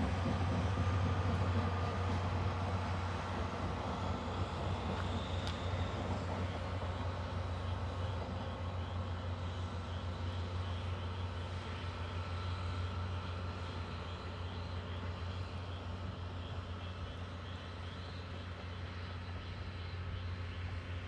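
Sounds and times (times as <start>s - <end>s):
distant locomotive engine drone: 0.0s - 21.0s.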